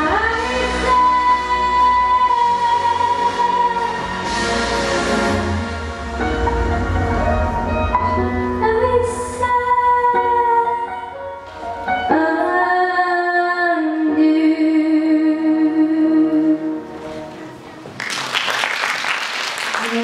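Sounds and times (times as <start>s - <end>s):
instrumental backing music: 0.0s - 18.0s
girl singing: 8.6s - 11.1s, 12.1s - 16.8s.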